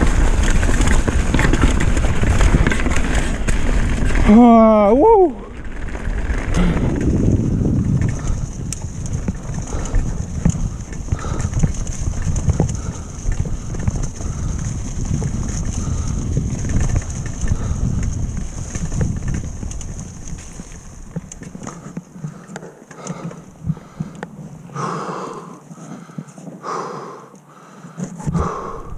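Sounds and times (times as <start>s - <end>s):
wind on microphone: 0.0s - 22.0s, 28.2s - 28.9s
bike chain and frame rattle: 0.0s - 26.6s
bike tyre rumble on dirt: 0.0s - 28.9s
person panting: 9.6s - 11.8s, 12.6s - 14.8s, 17.4s - 18.1s, 21.7s - 28.9s.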